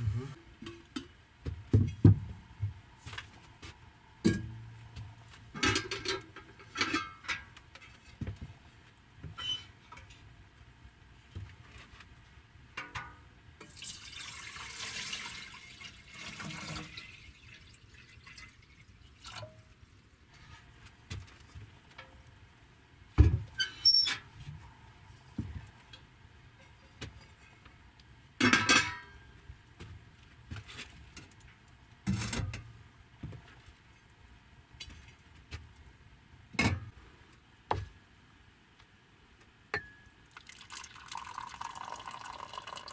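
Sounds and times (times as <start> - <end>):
water poured into pot: 13.6 - 19.5, 40.3 - 42.9
pots and dishes clinking: 28.4 - 29.2, 39.8 - 40.0.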